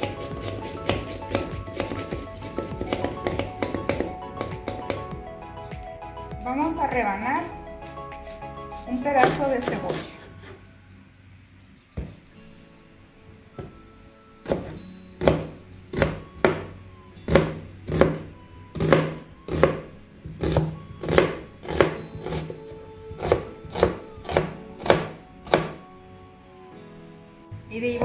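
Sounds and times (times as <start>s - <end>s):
knife chopping on cutting board: 0.0s - 5.1s, 7.8s - 10.2s, 14.5s - 16.7s, 17.3s - 18.2s, 18.8s - 19.8s, 20.4s - 22.6s, 23.2s - 25.8s.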